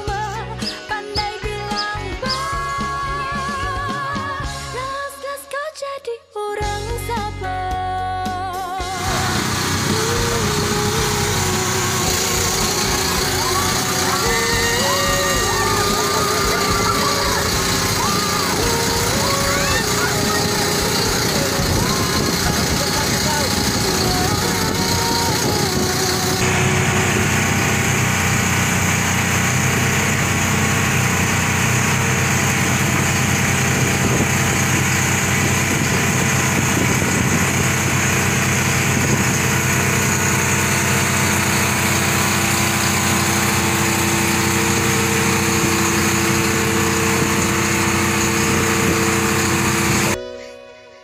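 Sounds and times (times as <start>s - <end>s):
music: 0.0s - 26.5s, 50.2s - 51.0s
boat engine running: 8.8s - 50.2s.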